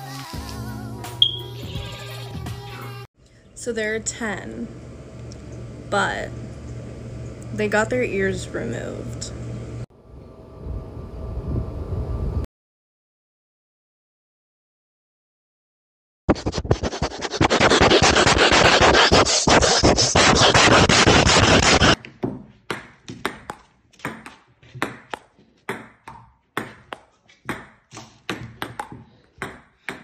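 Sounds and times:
scraping on microphone: 16.3 - 22.0.

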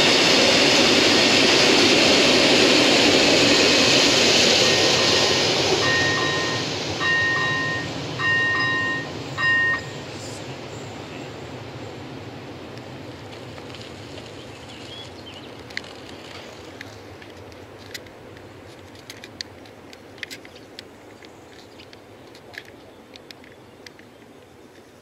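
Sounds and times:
bicycle rolling past: 13.0 - 17.9
bicycle clicks and rattles: 15.5 - 24.2.

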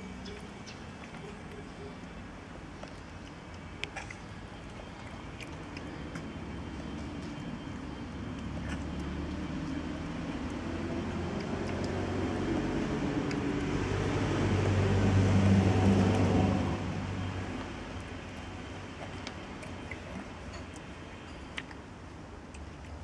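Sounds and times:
vehicle engine passing: 8.8 - 17.7.

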